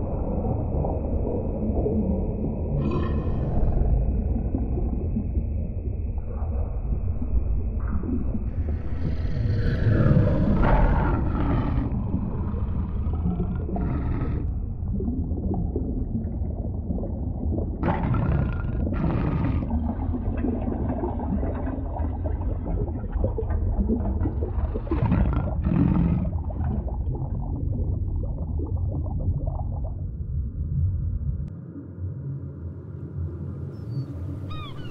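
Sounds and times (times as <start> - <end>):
deep underwater rumble: 0.0 - 34.9
animal roaring: 2.8 - 3.6, 9.0 - 14.5, 17.8 - 19.8, 24.9 - 26.4.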